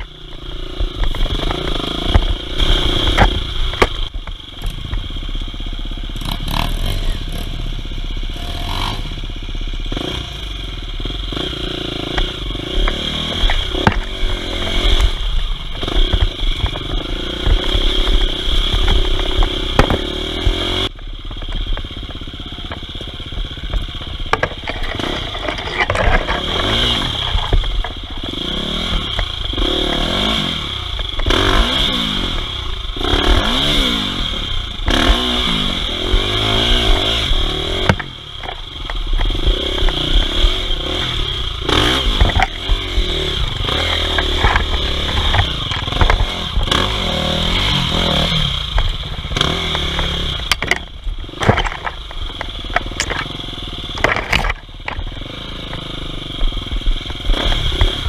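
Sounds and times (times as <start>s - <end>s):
dirt bike engine revving: 0.0s - 58.0s
bike rattling and scraping on rocks: 12.2s - 34.0s, 34.9s - 58.0s.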